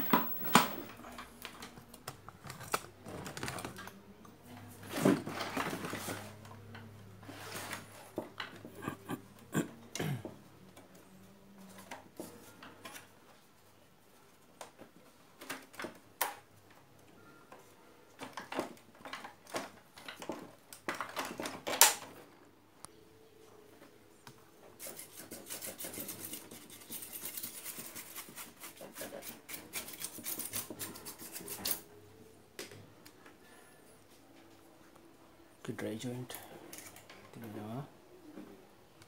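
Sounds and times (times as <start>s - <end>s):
scratchy rubbing: 24.8s - 31.8s.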